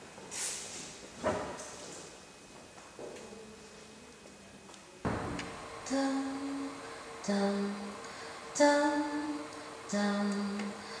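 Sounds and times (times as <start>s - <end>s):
steady held tone: 5.1s - 11.0s.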